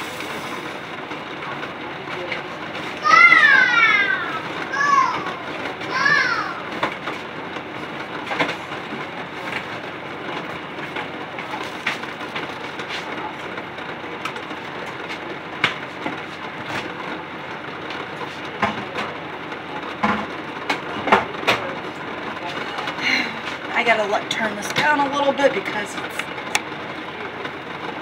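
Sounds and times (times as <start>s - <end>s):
pot of water boiling hard: 0.0s - 18.0s.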